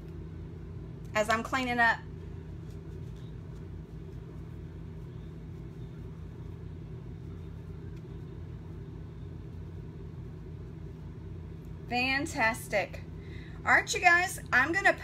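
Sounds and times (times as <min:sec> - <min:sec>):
low room hum: 0:00.0 - 0:15.0.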